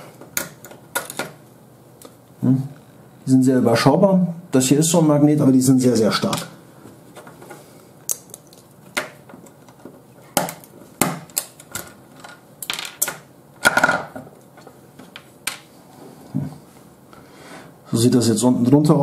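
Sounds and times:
small parts clicking and tapping: 0.2 - 1.4, 8.1 - 14.0.

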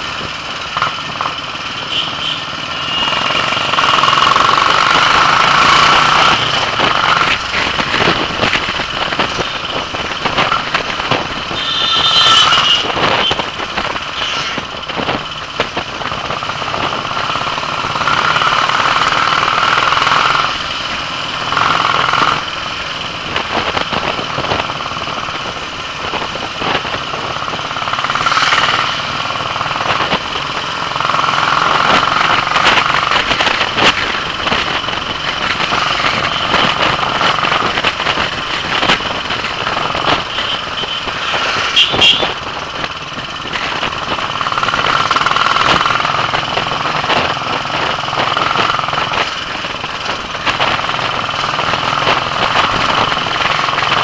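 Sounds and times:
motorcycle engine running: 0.0 - 54.0
road noise: 0.0 - 54.0
wind noise: 4.7 - 17.4, 31.5 - 54.0.

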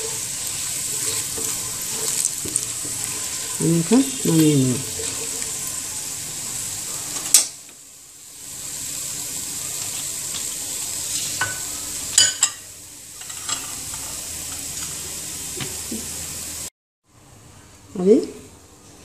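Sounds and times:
spatula stirring: 0.0 - 6.6
oil sizzling in pot: 0.0 - 16.7.

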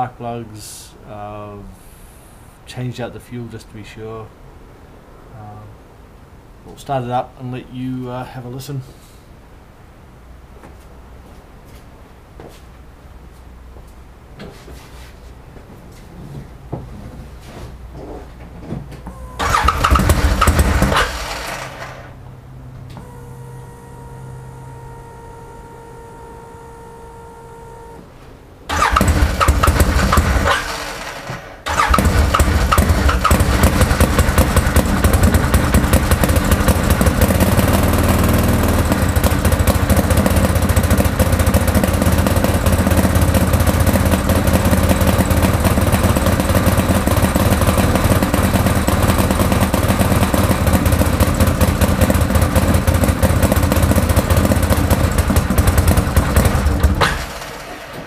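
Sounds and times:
engine starting and running: 19.0 - 58.0.

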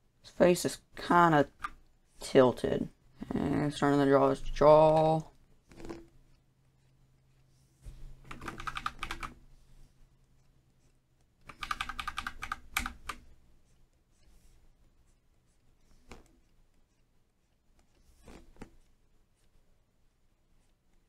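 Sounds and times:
scratchy stylus and keyboard clicking: 8.3 - 9.4, 10.4 - 13.3.

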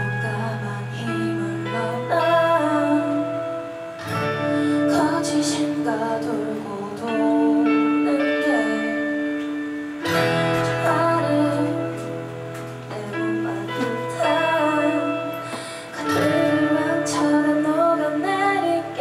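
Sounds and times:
acoustic and electric guitars: 0.0 - 19.0
woman singing: 0.0 - 19.0.

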